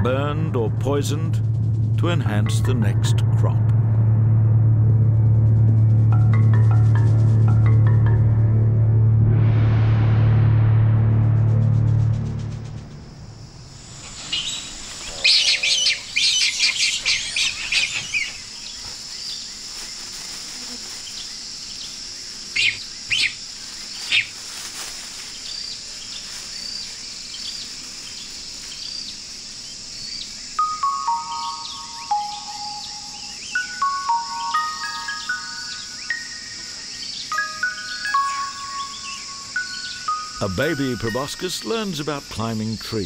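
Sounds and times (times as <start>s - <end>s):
descending mallet melody: 0.0s - 9.2s, 30.6s - 42.2s
music track: 0.0s - 13.0s, 30.6s - 43.0s
steady high drone: 0.0s - 17.8s, 29.6s - 42.8s
birds calling: 13.6s - 43.0s.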